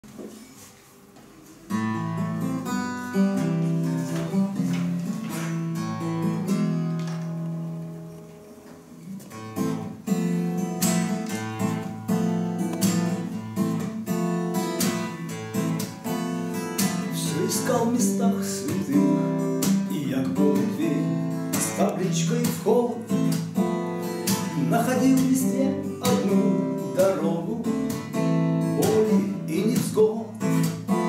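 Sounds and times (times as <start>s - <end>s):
acoustic guitar picked notes: 0.1s - 31.0s
acoustic guitar strumming: 1.3s - 31.0s.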